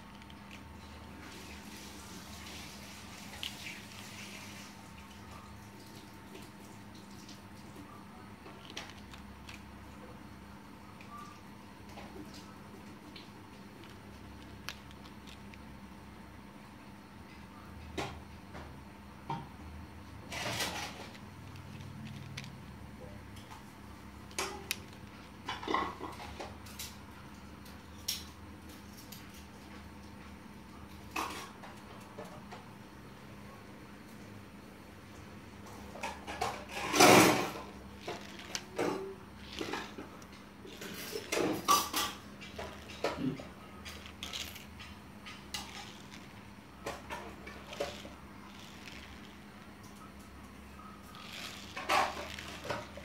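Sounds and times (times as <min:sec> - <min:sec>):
faint steady hum: 0:00.0 - 0:53.0
plastic toy clattering on floor: 0:20.3 - 0:22.6, 0:36.0 - 0:49.6, 0:51.1 - 0:53.0.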